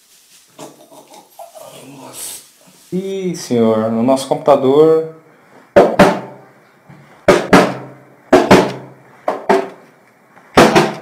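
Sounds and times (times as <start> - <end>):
hand slapping plastic monitor: 7.3 - 11.0.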